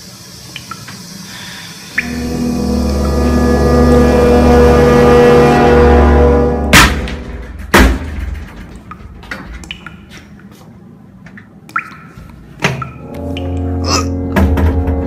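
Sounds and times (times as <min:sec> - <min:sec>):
bangs on toilet cubicle door: 0:06.7 - 0:08.7.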